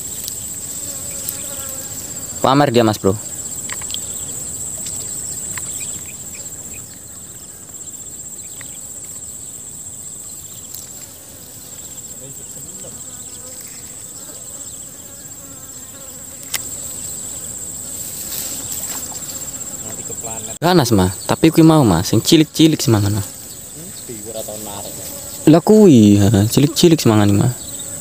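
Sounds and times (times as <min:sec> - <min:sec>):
insects chirring: 0:00.0 - 0:28.0
sharp click: 0:16.4 - 0:16.7.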